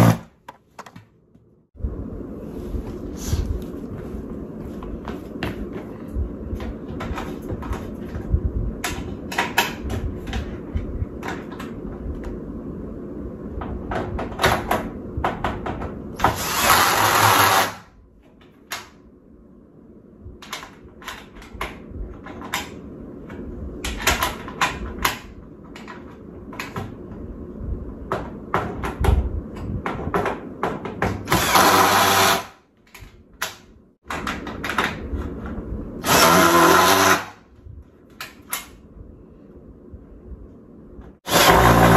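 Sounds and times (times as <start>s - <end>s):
cordless drill driving screws: 16.2s - 17.8s, 31.3s - 32.5s, 36.0s - 37.4s, 41.3s - 41.9s
metal panels clicking and knocking: 20.4s - 27.1s, 32.8s - 35.6s.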